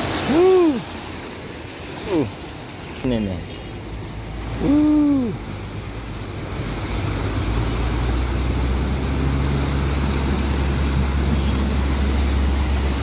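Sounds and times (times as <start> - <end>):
water sloshing: 0.0 - 13.0
truck engine running: 4.1 - 13.0.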